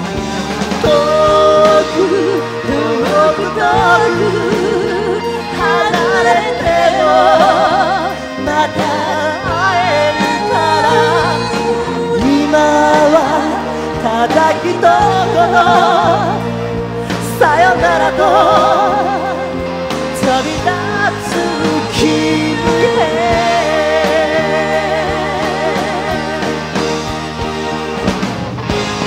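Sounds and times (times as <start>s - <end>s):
rock band playing: 0.0s - 29.0s
person singing with vibrato: 0.7s - 27.0s.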